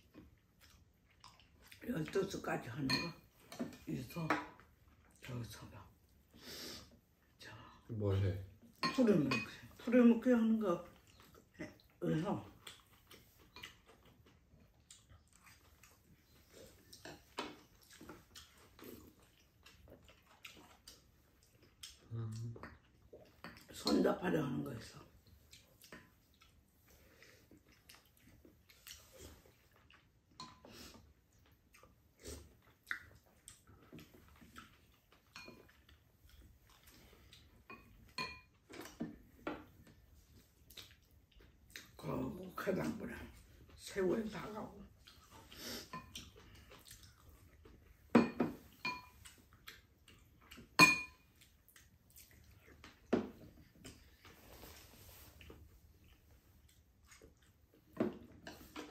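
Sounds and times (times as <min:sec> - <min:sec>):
chewing and slurping: 0:00.0 - 0:02.4, 0:10.8 - 0:24.0, 0:24.8 - 0:58.9
utensils clinking on ceramic bowls: 0:02.8 - 0:03.7, 0:08.8 - 0:09.7, 0:37.7 - 0:38.6, 0:48.2 - 0:49.2, 0:50.8 - 0:51.3.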